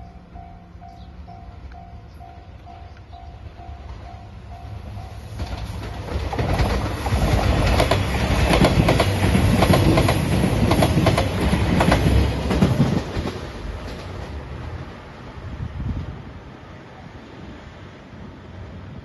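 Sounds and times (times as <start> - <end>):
diesel train passing: 0.0 - 19.0
wheels clacking over rail joints: 5.3 - 14.5.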